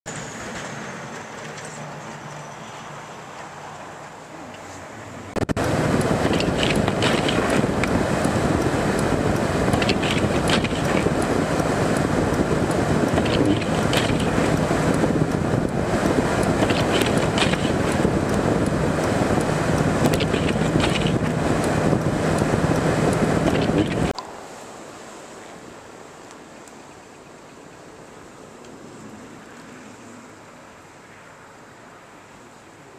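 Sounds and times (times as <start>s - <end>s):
driving and wind noise: 0.1s - 24.2s
ticks and clicks: 5.4s - 24.3s.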